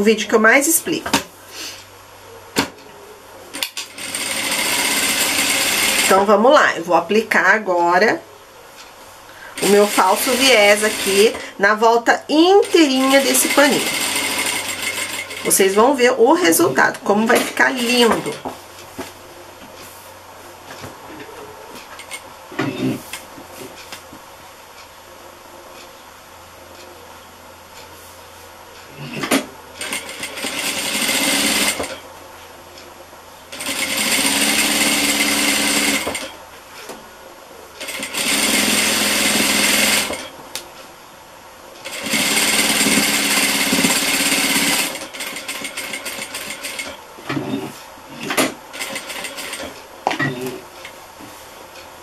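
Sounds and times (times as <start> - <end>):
industrial sewing machine stitching: 3.6 - 6.3, 9.5 - 11.6, 12.6 - 16.1, 29.1 - 32.0, 33.5 - 36.4, 37.8 - 40.3, 41.8 - 50.4.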